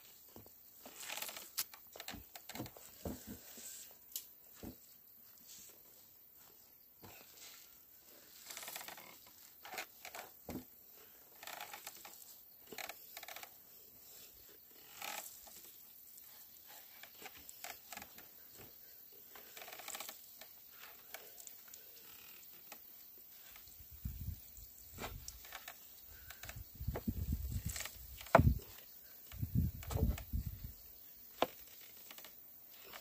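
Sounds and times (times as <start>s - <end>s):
wooden press creaks and crackles: 0.4s - 3.5s, 8.3s - 13.7s, 14.6s - 15.8s, 16.7s - 24.2s, 24.9s - 33.0s.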